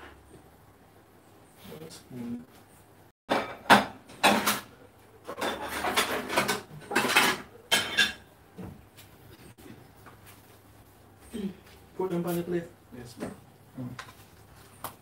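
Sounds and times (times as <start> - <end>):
dishes and cutlery knocking: 3.3 - 4.7, 5.3 - 8.2
dishes scraping and clattering: 3.3 - 8.4.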